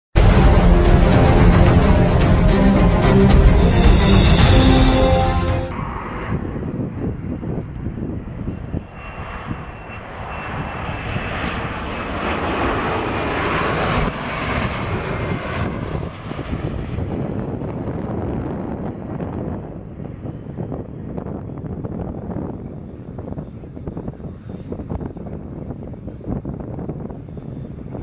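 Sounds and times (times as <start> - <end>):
jet engines rushing: 0.2 - 28.0
faint high engine whine: 5.7 - 18.7.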